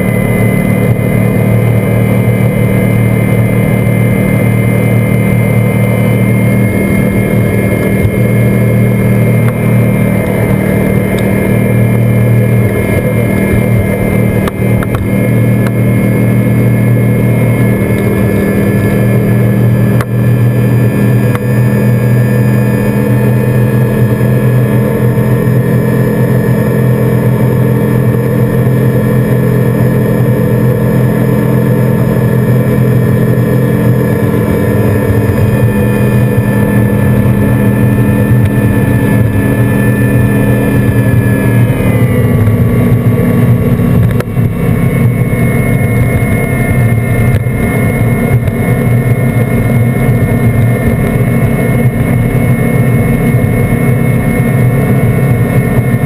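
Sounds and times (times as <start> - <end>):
outboard engine running at high speed: 0.0 - 56.0.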